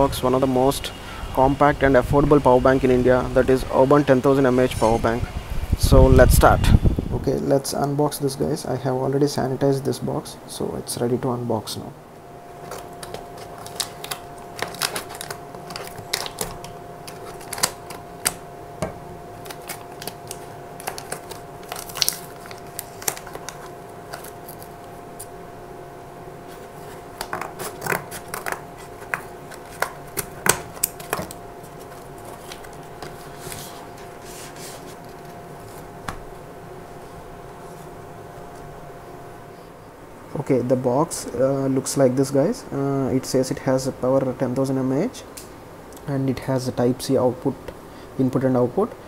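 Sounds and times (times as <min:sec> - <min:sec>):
faint hum: 0:00.0 - 0:49.0
packaging crinkling and tearing: 0:12.6 - 0:18.4, 0:19.4 - 0:24.7, 0:27.1 - 0:33.8.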